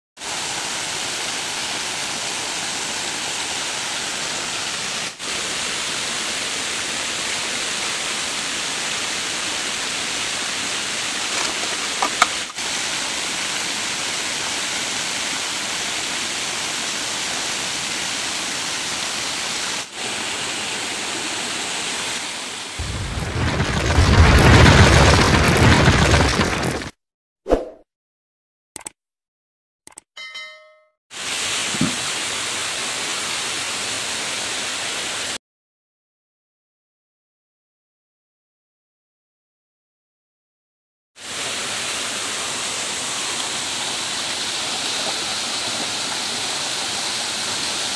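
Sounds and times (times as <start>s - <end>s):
stream water running over rocks: 0.2s - 24.5s, 31.2s - 35.4s, 41.2s - 47.9s
deep rumbling crashing sound effect: 22.8s - 26.9s.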